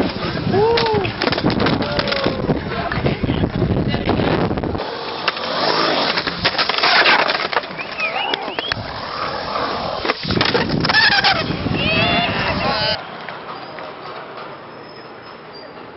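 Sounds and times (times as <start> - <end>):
skateboard clacking: 0.0 - 14.7
skateboard wheels rolling on concrete: 0.0 - 15.9.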